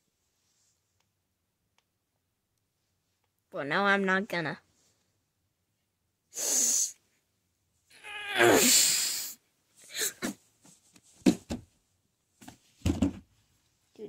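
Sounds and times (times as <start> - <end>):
person hissing breath: 6.3 - 7.0, 8.4 - 10.2
person strained cry: 7.9 - 10.3.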